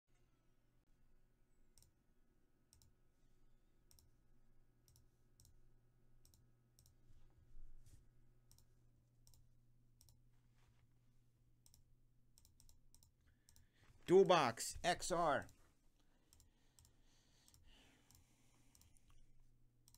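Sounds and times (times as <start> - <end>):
low electrical hum: 0.2 - 19.9
computer mouse clicks: 2.7 - 3.0, 3.9 - 4.1, 4.8 - 5.6, 6.2 - 7.0, 8.5 - 10.2, 11.6 - 13.7, 16.3 - 19.9.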